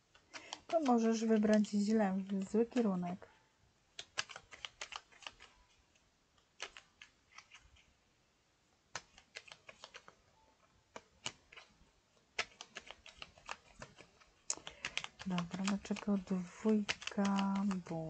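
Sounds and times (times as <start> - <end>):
fingernails tapping on cards: 0.1 - 2.9, 3.9 - 5.7, 6.4 - 7.7, 8.9 - 10.2, 10.9 - 11.7, 12.3 - 18.0.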